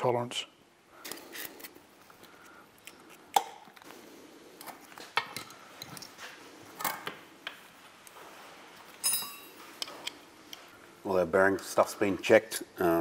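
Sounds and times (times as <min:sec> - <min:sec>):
metallic clinks of steel parts: 0:09.0 - 0:09.9.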